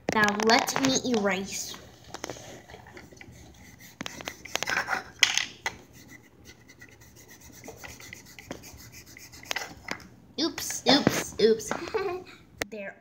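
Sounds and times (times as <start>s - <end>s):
rubbing chalk off chalkboard: 2.3s - 9.8s.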